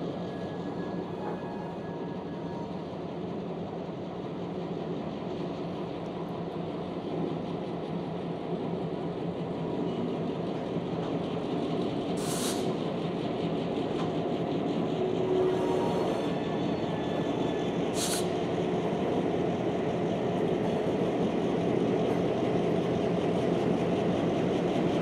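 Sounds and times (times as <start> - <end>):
diesel locomotive engines rumbling: 0.0 - 25.0
short hiss: 12.2 - 12.8, 18.0 - 18.3.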